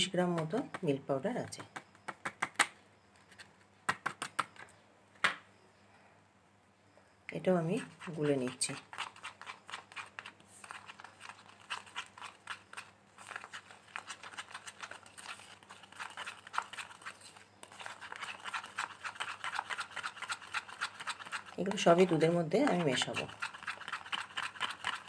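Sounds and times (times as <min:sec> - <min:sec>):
spoon scraping small bowl: 0:07.6 - 0:25.0.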